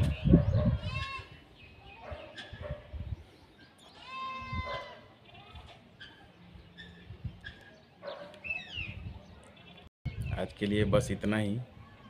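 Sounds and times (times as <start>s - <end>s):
goat bleating: 4.0s - 4.7s.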